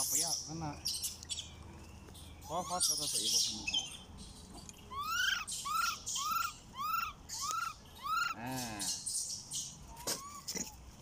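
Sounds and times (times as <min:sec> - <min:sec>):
macaque calling: 0:02.4 - 0:03.9, 0:04.9 - 0:10.8.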